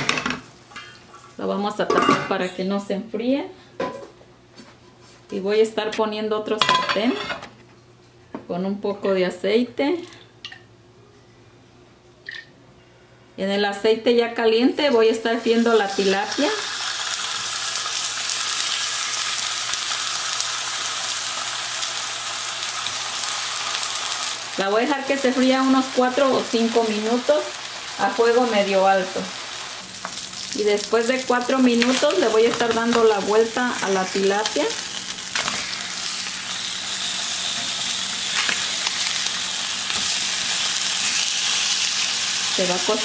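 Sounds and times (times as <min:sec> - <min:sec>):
fish fillets sizzling in hot oil: 0:15.3 - 0:43.0.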